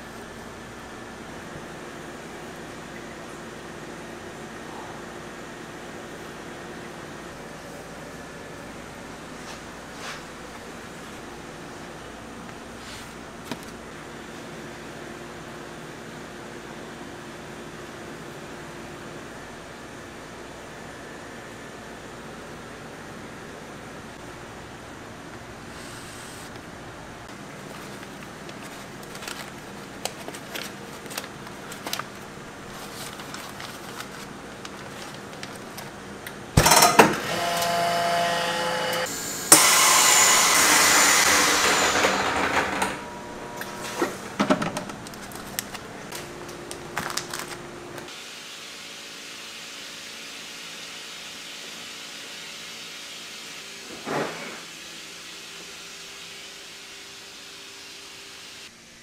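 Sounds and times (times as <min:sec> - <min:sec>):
vacuum sealer machine running: 0:24.3 - 0:48.4
air hissing into chamber: 0:25.7 - 0:26.6
low steady hum: 0:42.6 - 0:48.1.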